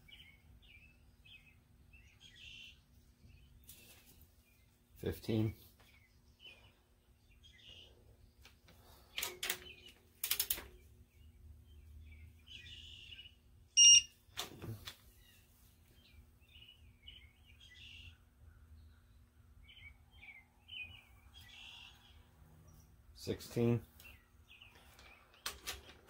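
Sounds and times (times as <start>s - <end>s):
short electronic beep: 13.8s - 14.1s.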